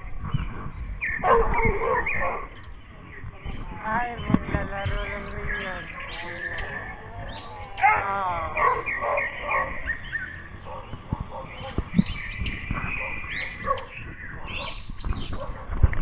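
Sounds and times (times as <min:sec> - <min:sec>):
dog barking: 0:01.2 - 0:02.5, 0:07.8 - 0:11.9, 0:12.8 - 0:15.9.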